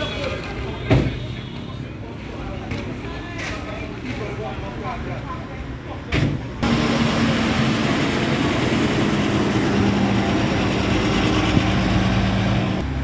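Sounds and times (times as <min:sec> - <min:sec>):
heavy truck engine running: 0:06.6 - 0:13.0.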